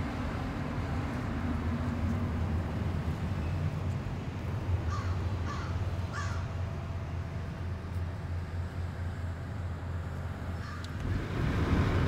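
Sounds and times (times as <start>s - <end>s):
low traffic rumble: 0.0s - 12.0s
crow cawing: 4.9s - 6.4s, 10.6s - 10.9s.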